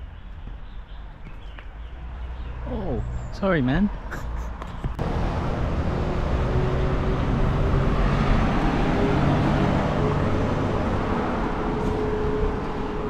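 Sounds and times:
road traffic drone: 0.0s - 13.0s.

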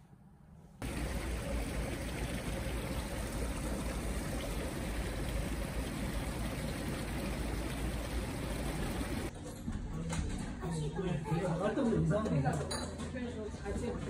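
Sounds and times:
bubbling circulating water: 0.8s - 9.3s.

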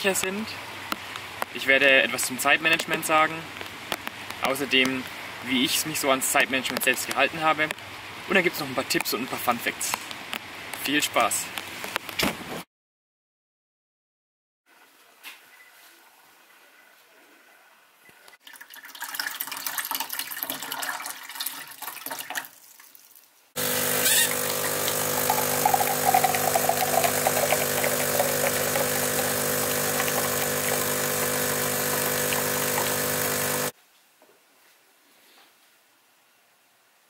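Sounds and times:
coffee pouring: 18.4s - 22.9s, 23.6s - 33.7s
coffee beans grinding: 23.6s - 33.7s
espresso machine pump humming: 23.6s - 33.7s.

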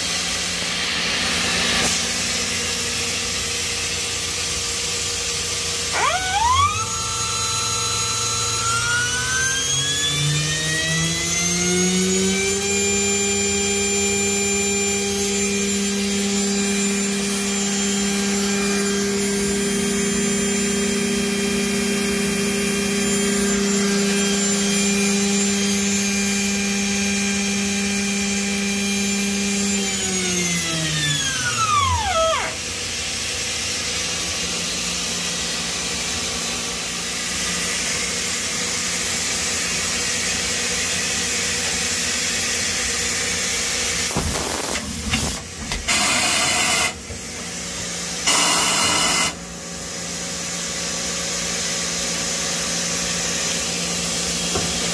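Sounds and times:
machine running noise: 0.0s - 13.5s, 28.6s - 49.6s
milling spindle high whine: 2.6s - 22.1s, 22.7s - 35.0s.

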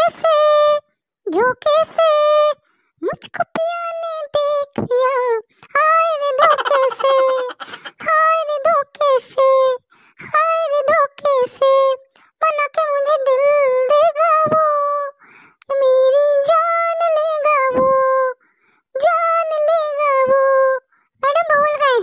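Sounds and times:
high cartoon voice singing: 6.0s - 8.6s.

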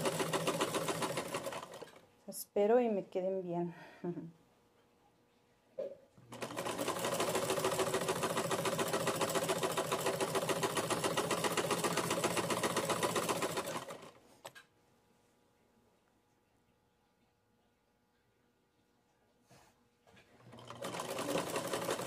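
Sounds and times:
sewing machine stitching: 0.0s - 2.0s, 6.3s - 14.6s, 20.4s - 22.0s.

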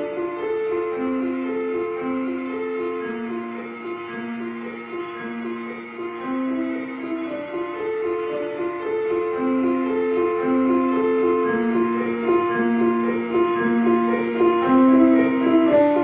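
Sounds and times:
slow instrumental music: 0.0s - 16.0s.

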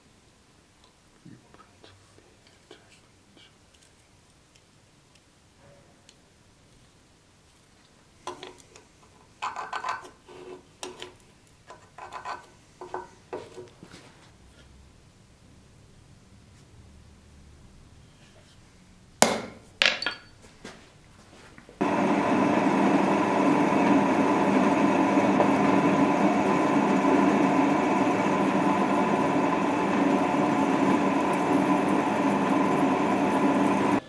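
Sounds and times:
drill press drilling steel: 21.8s - 34.0s.

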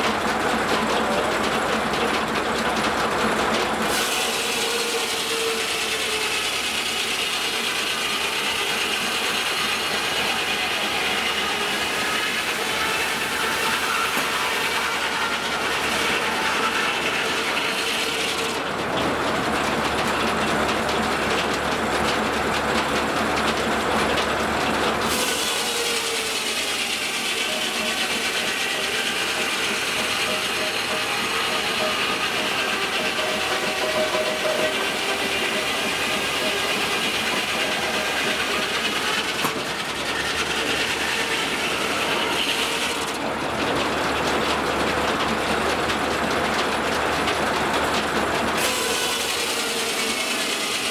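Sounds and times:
saw blade cutting log: 0.0s - 50.9s
circular saw ringing whine: 3.9s - 18.3s, 25.2s - 43.2s.

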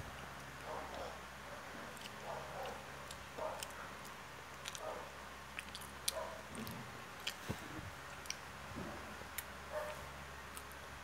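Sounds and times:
child chewing: 1.8s - 10.8s
wet mouth clicks and smacks: 5.5s - 7.4s.

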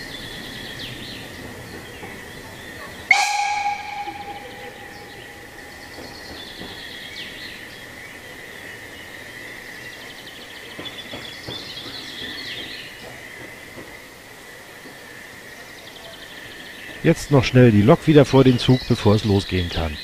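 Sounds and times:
locomotive knocking on track: 0.0s - 7.8s, 10.6s - 14.1s
birds chirping: 0.0s - 14.3s, 14.9s - 20.0s
steady high-pitched tone: 3.1s - 6.0s.

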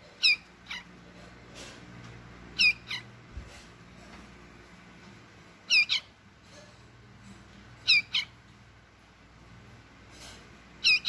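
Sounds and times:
bird chirping: 0.0s - 0.9s, 2.6s - 3.2s, 5.6s - 6.2s, 7.8s - 8.5s, 10.8s - 11.0s.

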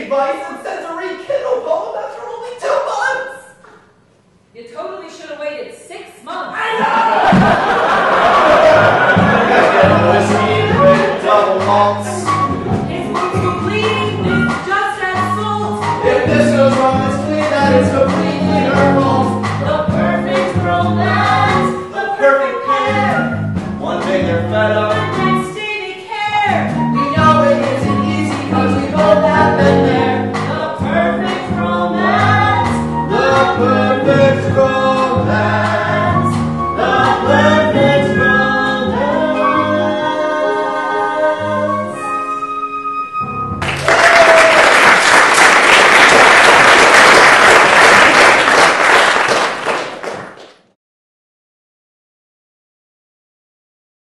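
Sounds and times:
audience applause: 7.0s - 11.6s, 43.6s - 50.6s
instrumental accompaniment: 7.4s - 25.7s, 26.3s - 44.0s
man and woman singing duet: 8.3s - 42.4s.

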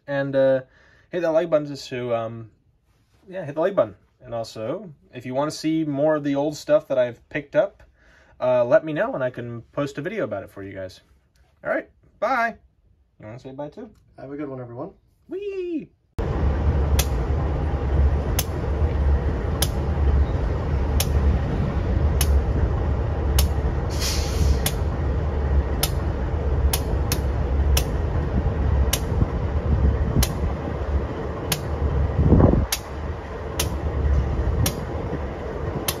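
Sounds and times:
freight train rumbling: 16.2s - 36.0s
short hiss: 23.4s - 24.9s.

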